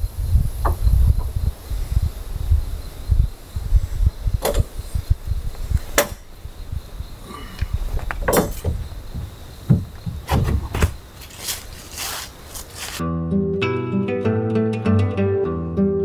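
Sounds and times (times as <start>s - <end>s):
faint high insect buzz: 0.0s - 13.0s
sharp knocks and clicks: 4.4s - 4.7s, 5.9s - 6.2s, 8.0s - 11.0s.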